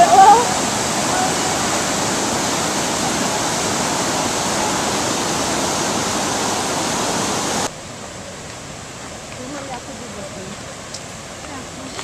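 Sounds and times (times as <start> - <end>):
whitewater rapids rushing: 0.0 - 7.7.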